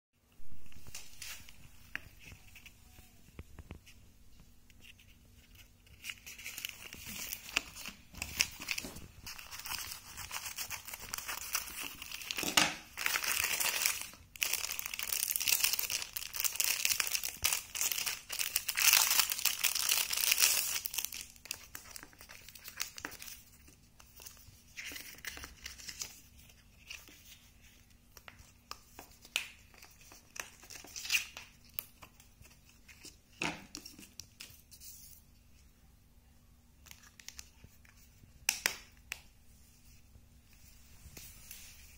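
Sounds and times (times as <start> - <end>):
plastic bag crinkling: 5.9 - 23.0.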